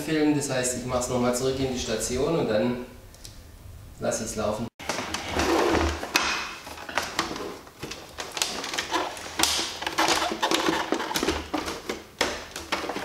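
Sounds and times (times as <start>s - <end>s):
plastic panel clacking and scraping: 4.8s - 13.0s.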